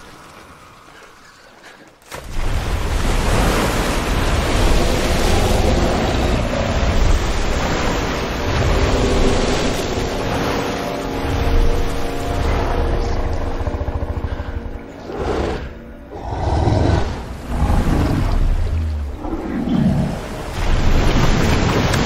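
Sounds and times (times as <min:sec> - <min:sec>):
crashing churning water: 0:02.0 - 0:14.2, 0:17.0 - 0:22.0
deep rumble: 0:11.6 - 0:16.2.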